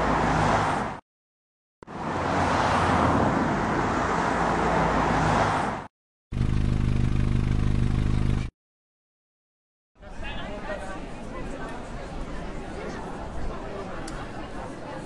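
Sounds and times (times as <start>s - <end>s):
car rushing past: 1.9s - 5.9s
engine idling: 6.4s - 8.5s.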